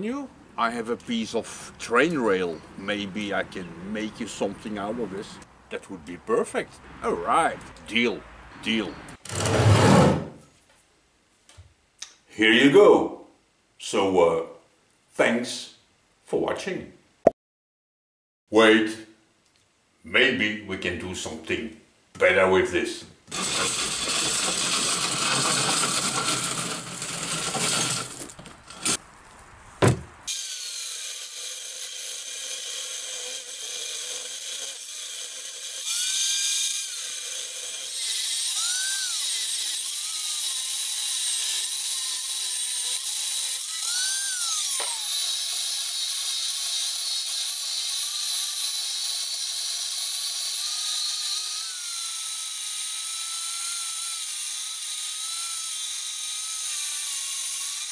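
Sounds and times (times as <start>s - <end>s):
angle grinder cutting steel: 23.3s - 29.0s, 30.3s - 57.9s
steel table rolling over gravel: 23.6s - 29.0s.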